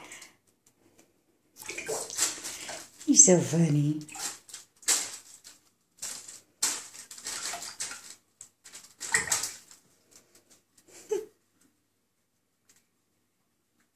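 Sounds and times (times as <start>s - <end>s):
bathwater splashing: 1.6s - 9.8s.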